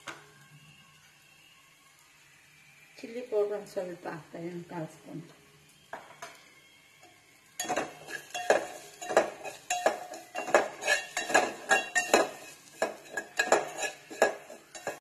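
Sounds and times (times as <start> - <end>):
spoon scraping metal pot: 7.6 - 15.0.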